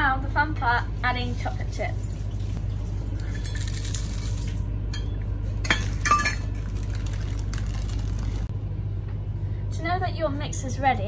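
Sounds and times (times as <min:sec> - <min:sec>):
chocolate chips rattling: 0:03.5 - 0:04.5, 0:05.8 - 0:08.5
metal cups clinking on bowl: 0:05.0 - 0:06.8.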